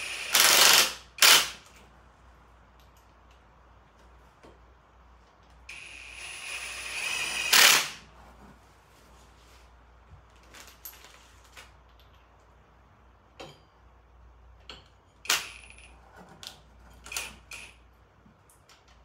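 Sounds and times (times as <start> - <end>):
metal tools clinking: 14.6 - 17.8.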